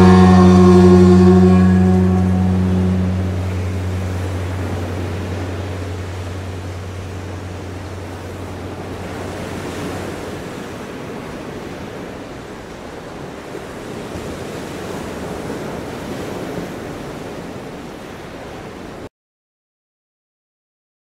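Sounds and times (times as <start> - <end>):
low hum: 0.0 - 11.0
ocean surf washing in: 0.0 - 19.1.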